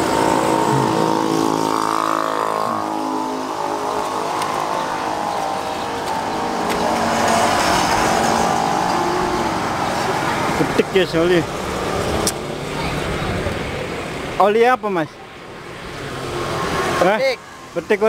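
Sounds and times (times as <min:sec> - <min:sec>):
motor engine humming: 0:00.0 - 0:13.7.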